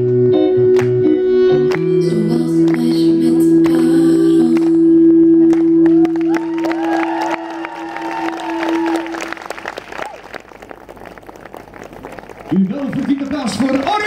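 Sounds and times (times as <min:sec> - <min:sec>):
audience applauding and cheering: 0:05.5 - 0:14.0.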